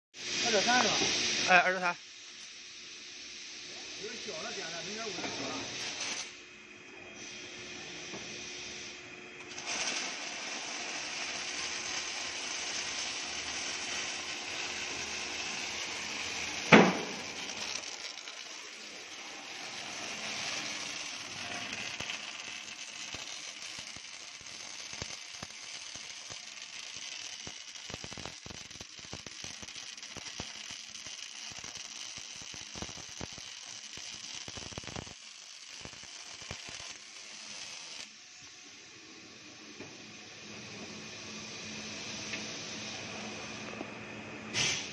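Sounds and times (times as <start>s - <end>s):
welding arc crackling and hissing: 0.2s - 6.5s, 7.1s - 44.9s
sharp pop: 16.7s - 17.2s, 44.5s - 44.9s.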